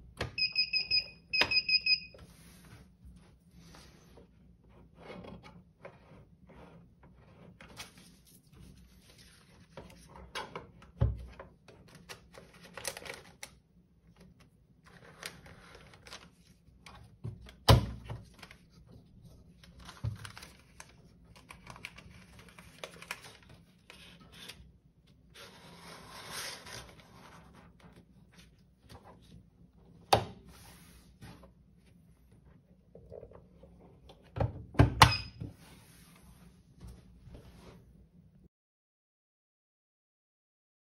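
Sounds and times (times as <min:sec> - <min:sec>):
label paper rustling and sliding: 0:06.0 - 0:10.2, 0:25.3 - 0:29.4, 0:30.5 - 0:31.5.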